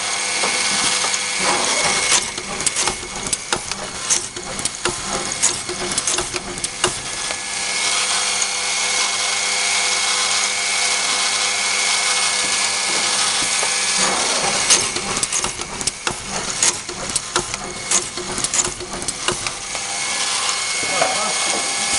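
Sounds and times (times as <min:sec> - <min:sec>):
drill boring into wood: 0:00.0 - 0:21.9
machine clicks and knocks: 0:00.4 - 0:07.5, 0:13.4 - 0:19.9.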